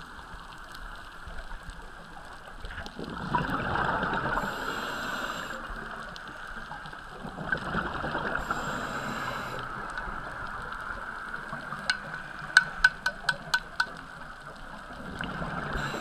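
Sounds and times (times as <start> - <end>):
underwater rush: 0.0 - 16.0
bubbling underwater: 2.8 - 4.6, 7.2 - 8.8
diver breathing through regulator: 4.4 - 5.8, 8.3 - 10.2, 15.7 - 16.0
sharp clicks: 11.8 - 14.0.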